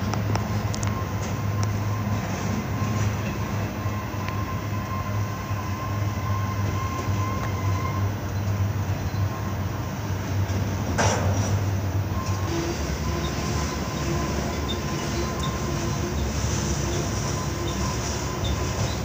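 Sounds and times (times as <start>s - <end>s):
train wheels rumbling on rail: 0.0s - 19.0s
thin wheel squeal: 4.4s - 8.2s, 12.1s - 19.0s.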